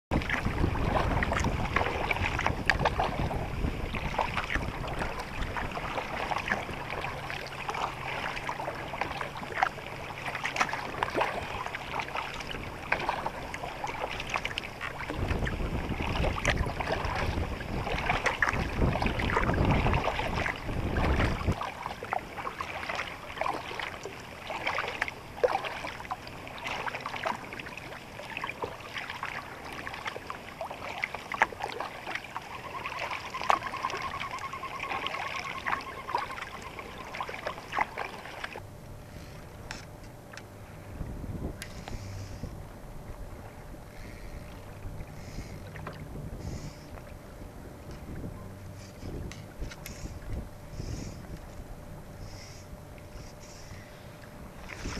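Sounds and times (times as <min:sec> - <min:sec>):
wind rumble on microphone: 0:00.1 - 0:23.8, 0:37.9 - 0:54.9
paddle splashing in water: 0:00.1 - 0:40.4, 0:41.1 - 0:54.9
water slapping a hull: 0:00.1 - 0:54.9.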